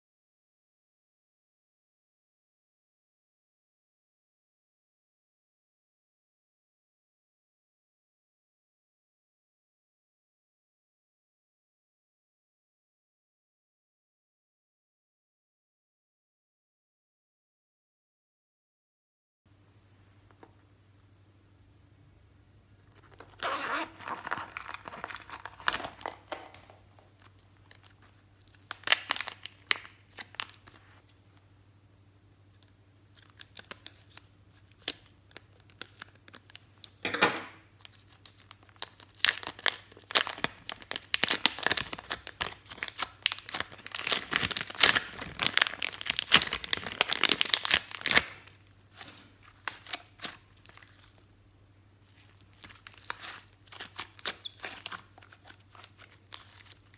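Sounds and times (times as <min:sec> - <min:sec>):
coin purse handling: 0:23.0 - 0:27.1
plastic bag crinkling: 0:23.0 - 0:31.1, 0:37.8 - 0:51.3, 0:52.0 - 0:56.9.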